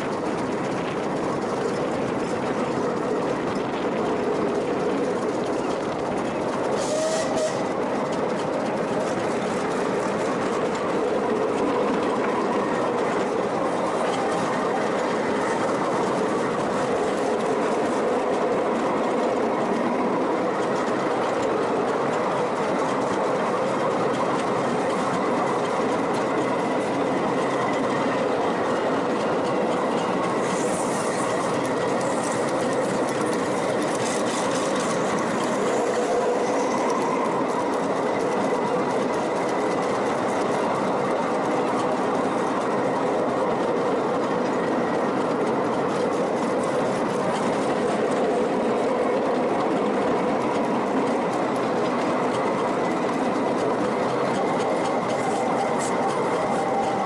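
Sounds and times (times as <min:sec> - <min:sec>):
train wheels running on rails: 0:00.0 - 0:57.0
steam hiss: 0:06.7 - 0:07.6, 0:30.2 - 0:37.0.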